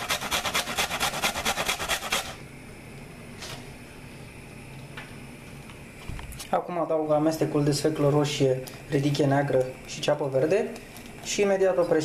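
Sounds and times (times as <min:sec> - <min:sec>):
root scraping on metal grater: 0:00.0 - 0:02.4.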